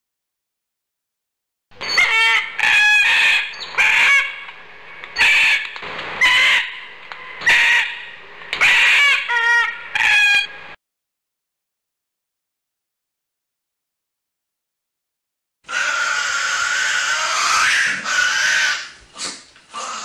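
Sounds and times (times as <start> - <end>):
cockatoo screeching: 1.8 - 4.5, 5.2 - 6.8, 7.4 - 10.6, 15.7 - 20.0.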